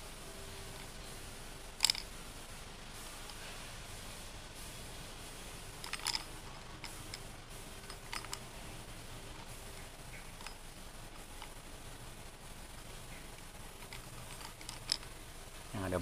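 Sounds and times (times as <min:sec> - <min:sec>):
fishing reel parts clicking: 0:01.8 - 0:02.1, 0:05.8 - 0:08.5, 0:10.1 - 0:10.6, 0:13.1 - 0:15.1.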